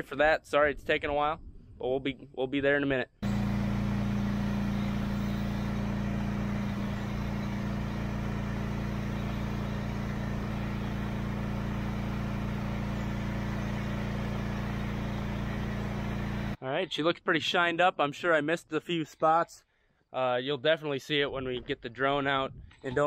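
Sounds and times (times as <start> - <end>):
pressure washer engine humming: 3.2 - 16.6.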